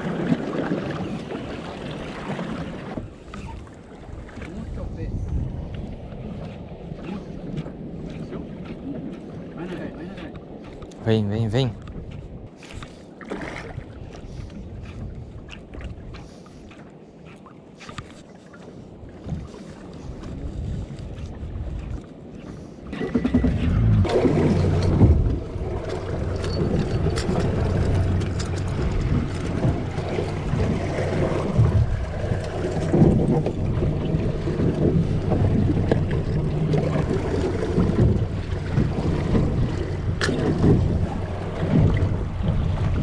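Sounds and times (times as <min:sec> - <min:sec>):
wind rushing over microphone: 0:02.9 - 0:12.6, 0:19.1 - 0:43.0
boat engine running: 0:21.1 - 0:43.0.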